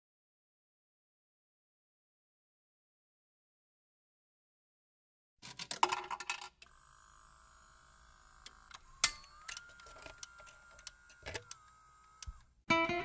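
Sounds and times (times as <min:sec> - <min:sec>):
coins clattering into slot: 0:05.4 - 0:06.6
jukebox mechanism whining: 0:05.4 - 0:12.6
sharp mechanical clicks: 0:06.5 - 0:12.6.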